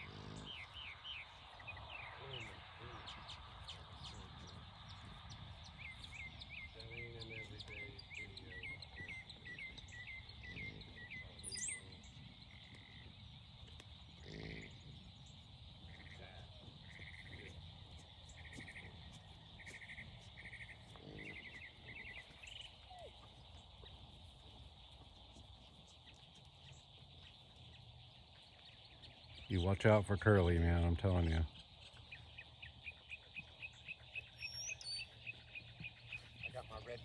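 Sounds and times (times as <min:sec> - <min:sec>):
bird chirping and trilling: 0:00.0 - 0:12.6, 0:28.4 - 0:37.0.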